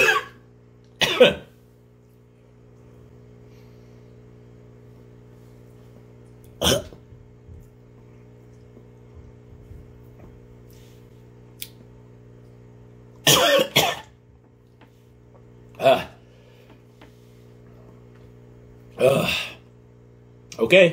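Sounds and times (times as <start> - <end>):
man coughing: 0.0 - 0.4, 1.0 - 1.6, 6.6 - 7.1, 13.2 - 14.2, 15.8 - 16.2, 19.0 - 19.6
steady low hum: 0.0 - 20.9.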